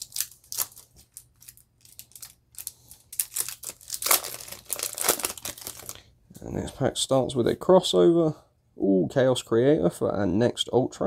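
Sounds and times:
foil pack crinkling and tearing: 0.0s - 6.0s.

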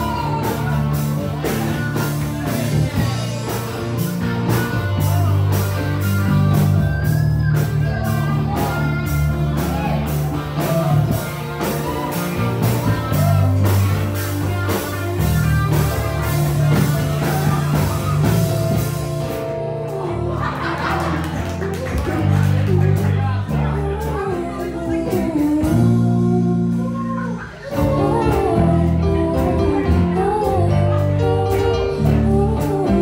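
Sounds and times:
drum kit beat: 0.0s - 33.0s
electric bass: 0.0s - 33.0s
electric guitars: 0.0s - 33.0s
woman singing: 22.5s - 33.0s.

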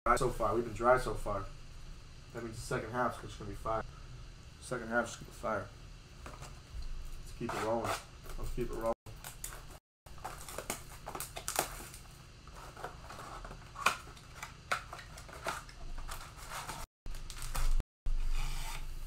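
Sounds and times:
foil wrappers crinkling: 8.8s - 17.8s.

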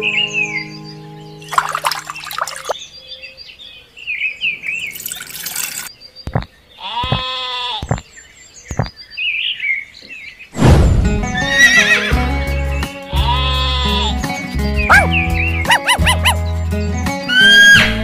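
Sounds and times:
sheep bleat: 6.8s - 7.9s, 13.0s - 14.2s
music with steady bass beat: 12.1s - 18.0s.

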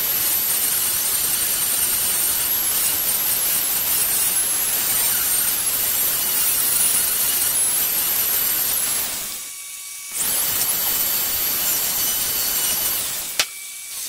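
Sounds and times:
grinder grinding metal: 0.0s - 14.0s.

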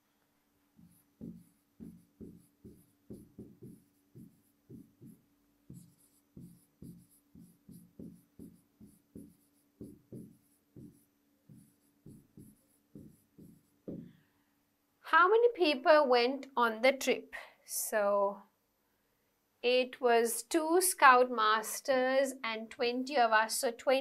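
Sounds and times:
pen writing on a whiteboard: 0.8s - 14.2s.

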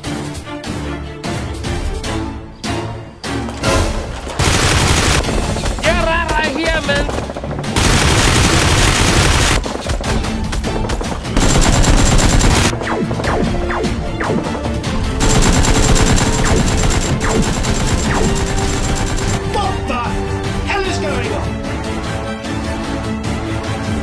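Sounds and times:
background music: 0.0s - 24.0s
automatic gunfire bursts: 4.4s - 5.6s, 7.1s - 9.6s, 11.4s - 12.8s, 15.2s - 19.4s.

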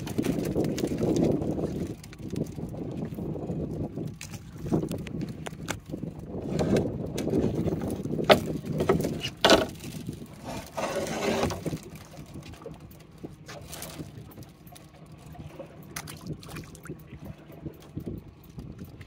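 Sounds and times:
low rumble: 5.9s - 19.0s.

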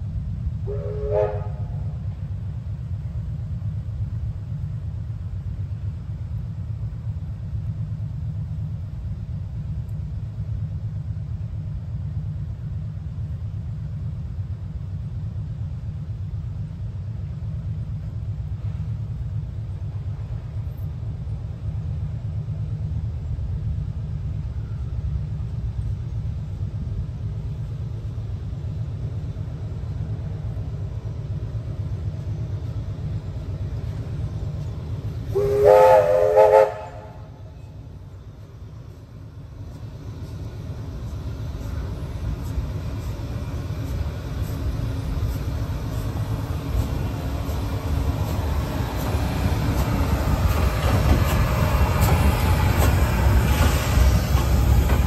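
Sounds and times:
steam locomotive whistle: 0.6s - 1.9s, 35.3s - 37.7s.

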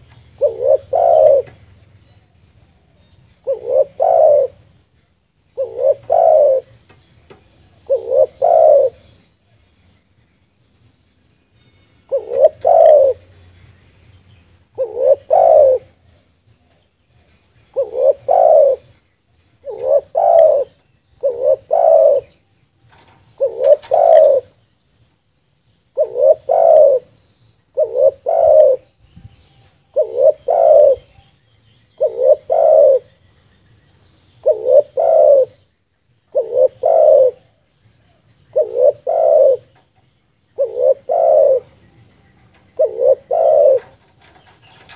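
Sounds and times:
dove cooing: 0.0s - 4.7s, 5.5s - 6.9s, 7.7s - 9.2s, 12.1s - 13.4s, 14.7s - 24.6s, 25.9s - 31.3s, 31.9s - 33.2s, 34.4s - 35.7s, 36.3s - 44.9s.

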